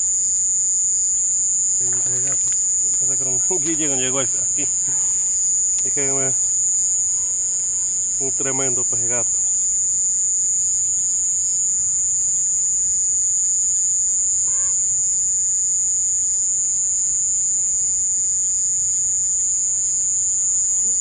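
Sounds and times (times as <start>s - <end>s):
crickets chirping: 0.0s - 21.0s.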